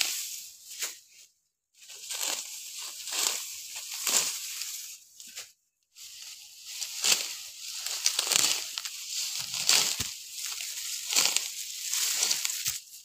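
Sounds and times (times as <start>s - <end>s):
wheat stalks rustling and crunching: 1.9s - 13.0s
hand sickle cutting stalks: 2.0s - 5.4s, 6.8s - 12.8s.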